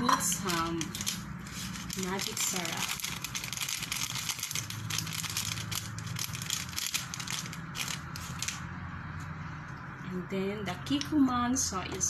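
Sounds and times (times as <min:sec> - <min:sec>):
plastic sachet crinkling: 0:00.2 - 0:08.7.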